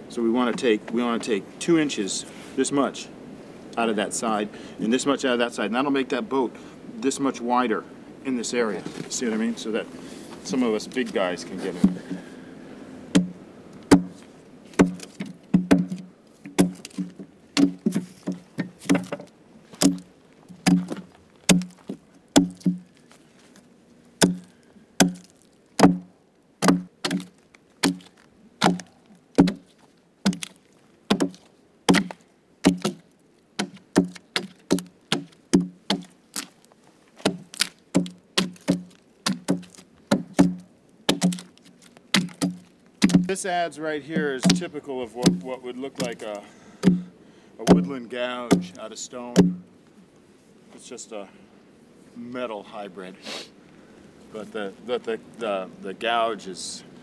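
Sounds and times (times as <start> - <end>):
adze chopping wood: 11.8 - 12.2, 13.1 - 23.0, 24.2 - 33.0, 33.6 - 36.6, 37.2 - 43.4, 44.1 - 46.2, 46.8 - 48.8, 49.4 - 49.7.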